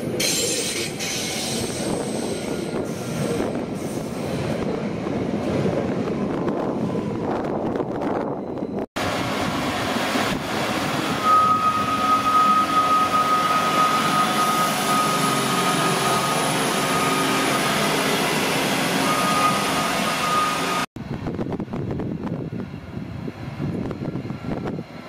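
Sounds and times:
steady high-pitched tone: 11.1 - 20.9.

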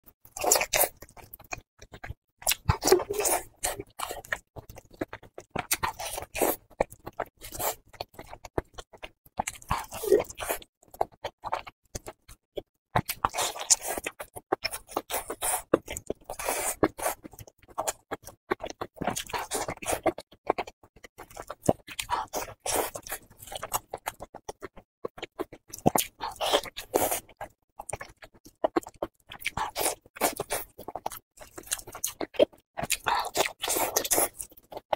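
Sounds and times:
person biting and chewing: 0.3 - 8.8, 25.8 - 34.9.

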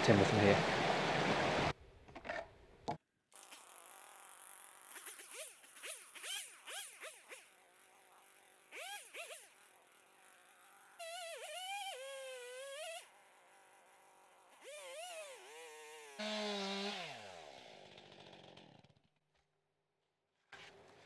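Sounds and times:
faint chainsaw engine revving: 3.3 - 19.4, 20.4 - 21.0.

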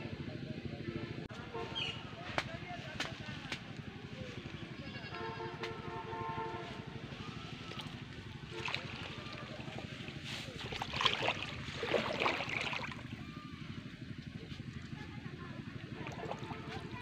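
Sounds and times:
water sloshing and splashing: 6.5 - 17.0.

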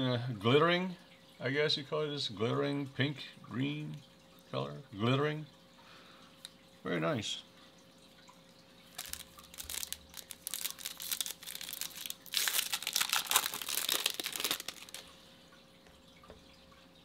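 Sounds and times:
foil wrapper crinkling and tearing: 8.9 - 15.0.

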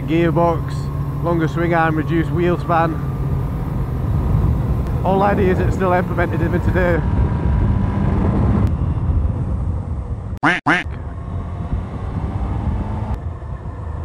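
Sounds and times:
motorcycle engine running: 0.0 - 10.3
quack-like honks: 10.4 - 11.0.

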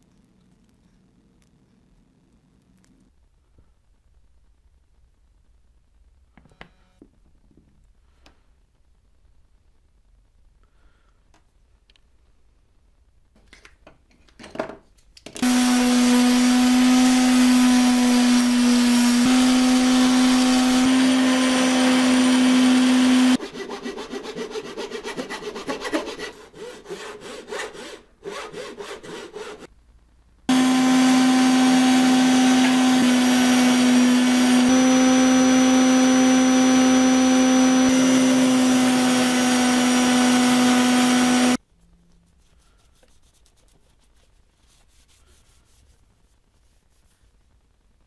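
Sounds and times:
belt sander running: 15.4 - 23.4, 30.5 - 41.6
wood rubbing on abrasive: 15.4 - 29.7, 30.5 - 41.6.

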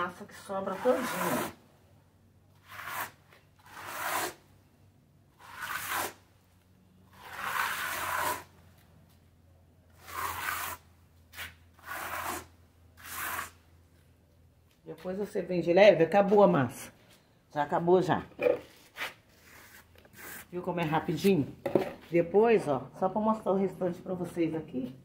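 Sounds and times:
float scraping wet mortar: 0.3 - 1.6, 2.5 - 4.4, 5.3 - 6.2, 7.0 - 8.6, 9.9 - 13.6.

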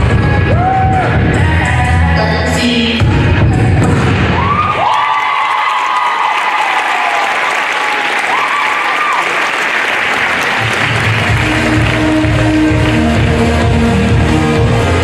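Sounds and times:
music with steady bass: 0.0 - 4.5, 10.7 - 15.0
audience applauding: 4.7 - 13.2.

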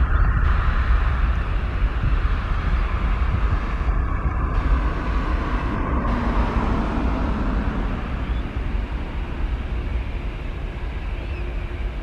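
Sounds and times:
jet engine roar: 0.0 - 12.0.

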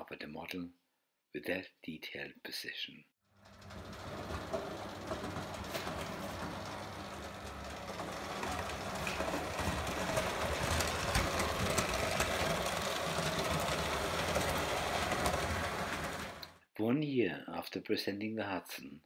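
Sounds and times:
wheels rattling over rail joints: 3.3 - 16.6
toy train motor whir: 3.4 - 16.6.

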